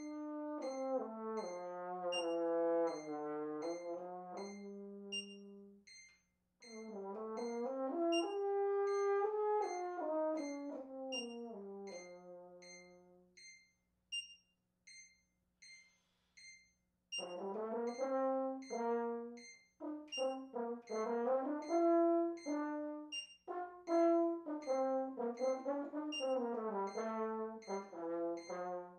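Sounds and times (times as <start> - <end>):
french horn playing notes: 0.0 - 5.1, 6.8 - 12.6, 17.3 - 28.9
metronome clicking: 2.1 - 3.8, 4.4 - 6.8, 10.5 - 11.5, 12.6 - 18.8, 19.4 - 28.8.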